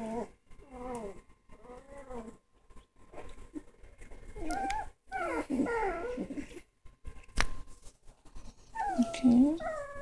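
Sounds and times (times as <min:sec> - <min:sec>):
puppies whining and whimpering: 0:00.0 - 0:02.5, 0:03.3 - 0:06.7, 0:08.5 - 0:10.0.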